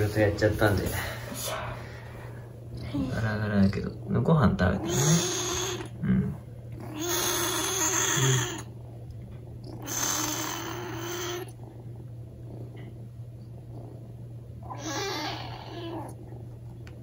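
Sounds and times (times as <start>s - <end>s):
kitten meowing hoarsely: 4.8s - 5.9s, 6.8s - 8.6s, 14.7s - 16.1s.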